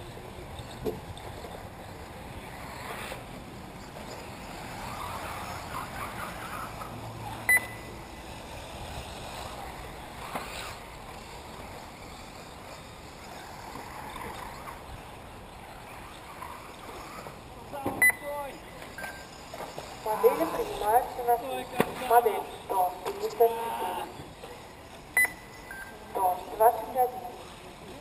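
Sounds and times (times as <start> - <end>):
rc cars whining: 0.0 - 28.0
brief high beep: 7.5 - 7.9, 18.0 - 18.2, 25.2 - 25.9.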